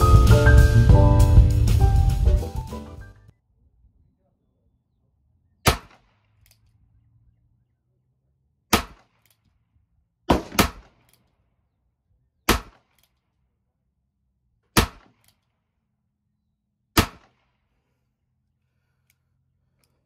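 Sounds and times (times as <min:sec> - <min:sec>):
revolver gunshots with echo: 0:05.6 - 0:06.4, 0:08.7 - 0:09.2, 0:10.3 - 0:11.1, 0:12.5 - 0:13.0, 0:14.8 - 0:15.2, 0:17.0 - 0:17.6.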